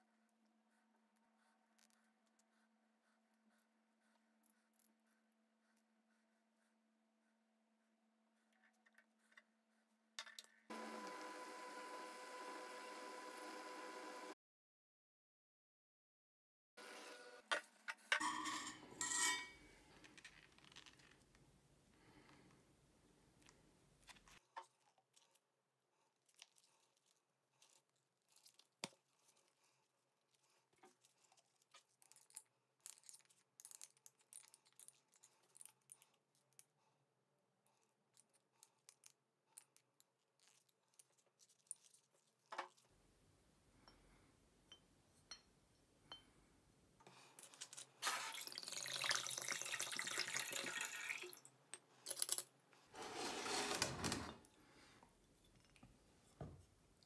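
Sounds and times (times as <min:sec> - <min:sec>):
water pouring from bottle: 0:47.7 - 0:51.5.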